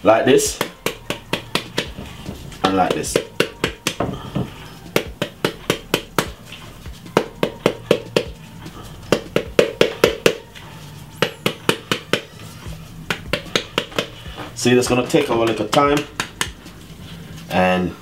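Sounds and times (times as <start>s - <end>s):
kitchen tool knocking pomegranate skin: 0.5s - 6.4s, 7.2s - 8.4s, 9.1s - 10.5s, 11.2s - 12.4s, 13.1s - 14.2s, 15.1s - 16.6s.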